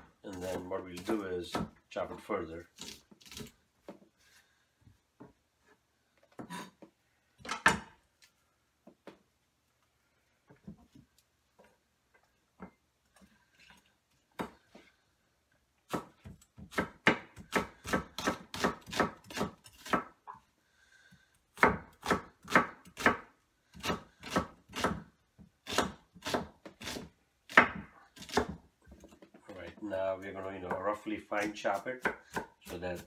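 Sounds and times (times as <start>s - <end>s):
knife chopping on wooden board: 15.9s - 20.2s, 21.6s - 29.1s, 30.6s - 33.0s.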